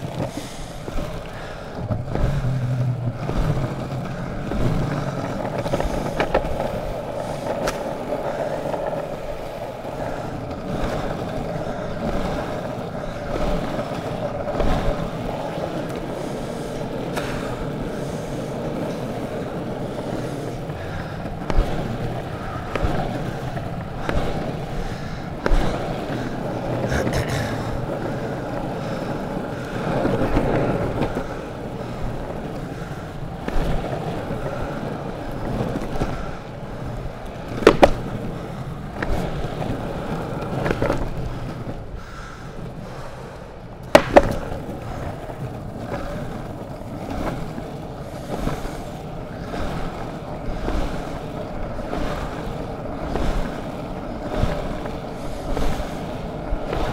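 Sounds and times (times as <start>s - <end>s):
longboard wheels rolling on pavement: 0.0s - 56.9s.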